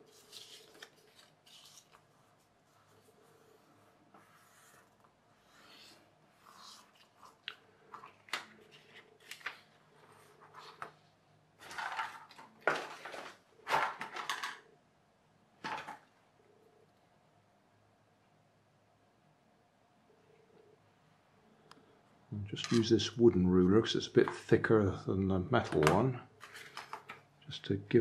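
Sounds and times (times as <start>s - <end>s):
paper folding and rustling: 0.0s - 14.6s, 25.7s - 27.3s.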